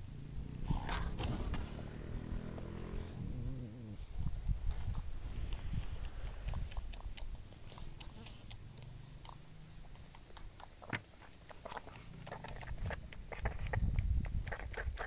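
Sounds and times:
dog licking and nibbling fur: 4.2s - 15.0s.

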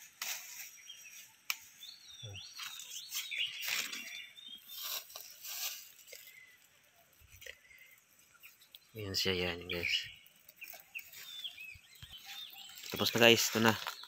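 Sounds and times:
small birds chirping: 0.0s - 14.0s
dry leaves crunching and rustling: 2.6s - 6.3s, 10.6s - 14.0s.

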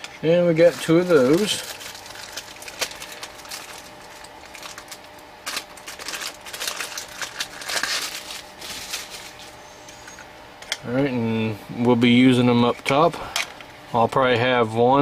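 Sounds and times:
rustling of small things handled: 0.4s - 10.3s.

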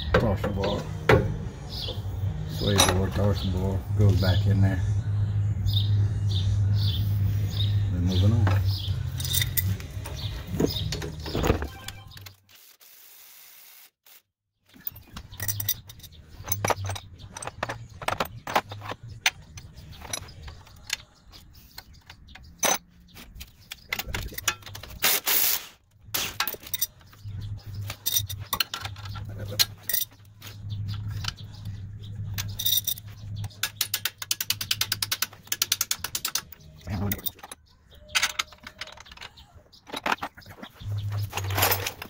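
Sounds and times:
metal tools clinking: 2.5s - 3.5s, 8.3s - 12.2s, 14.7s - 42.0s.

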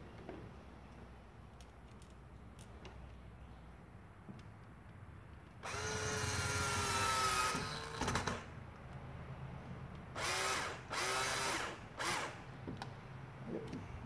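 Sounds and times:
cordless drill motor whining: 5.6s - 8.4s, 10.2s - 12.4s.

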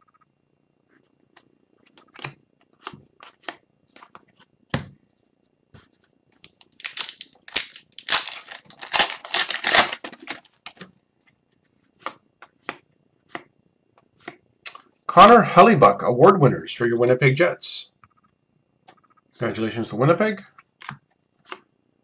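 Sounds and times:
trading cards rustling and clicking: 5.8s - 13.4s.

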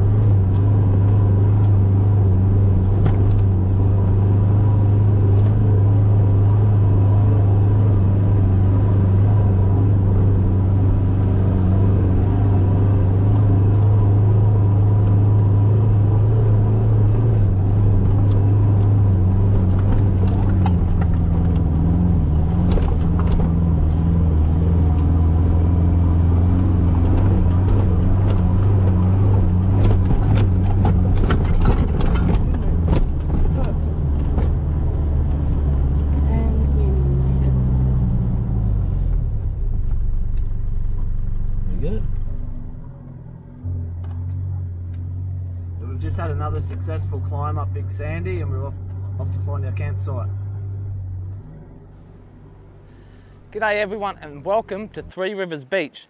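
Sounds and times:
car engine running under load: 0.0s - 55.2s
knocks and rattles: 26.9s - 36.2s.

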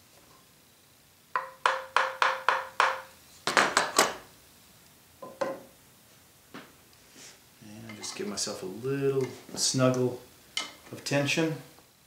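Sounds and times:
wooden mallet tapping metal knife: 1.4s - 3.1s.

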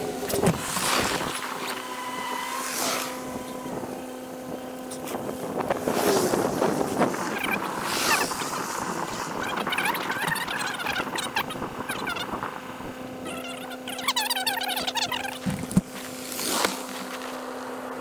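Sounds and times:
wind gusting on microphone: 0.0s - 14.0s
engine-like hum: 0.0s - 18.0s.

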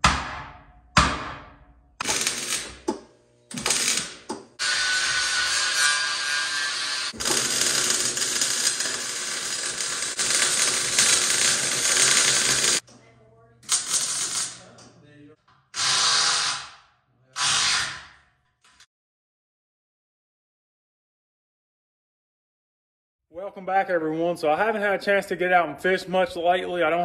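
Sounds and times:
angle grinder whining: 2.0s - 12.8s
welding arc crackling hiss: 2.0s - 12.8s, 13.7s - 14.6s.

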